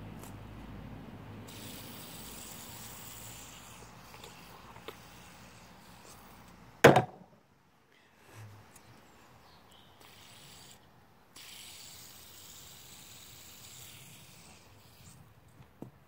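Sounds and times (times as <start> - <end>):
soft knock: 6.8 - 7.2.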